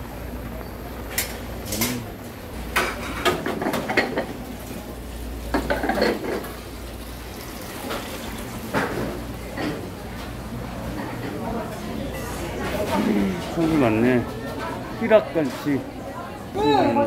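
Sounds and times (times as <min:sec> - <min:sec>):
metal pots and dishes clinking: 0:05.5 - 0:06.5.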